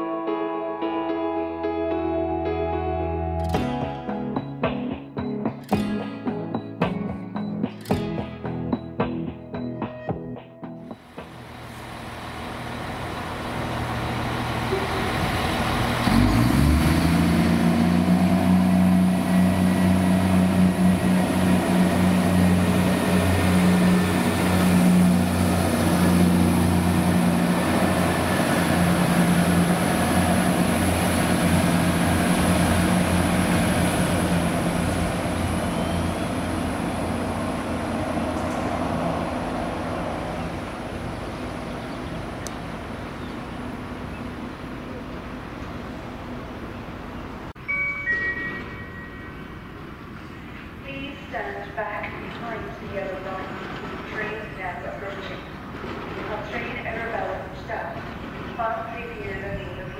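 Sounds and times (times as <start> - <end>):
diesel train engine under load: 11.0 - 59.9.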